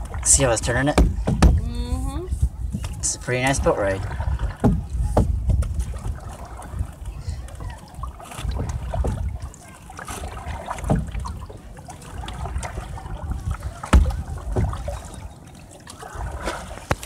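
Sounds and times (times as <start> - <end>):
water splashing along hull: 0.0 - 17.0
wind rumbling on microphone: 0.0 - 17.0
sharp knocks: 0.9 - 1.6.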